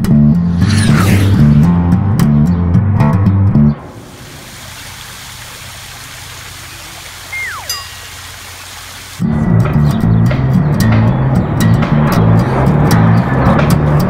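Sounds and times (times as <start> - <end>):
music with bass guitar: 0.0 - 3.8, 9.2 - 14.0
water pouring down fountain: 3.9 - 9.3
whistle falling in pitch: 7.3 - 8.0.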